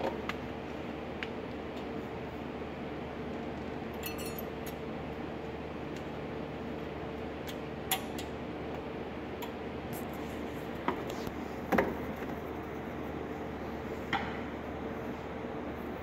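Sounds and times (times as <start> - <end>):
steady background hum: 0.0 - 16.0
metallic clicks and clinks: 3.9 - 4.8.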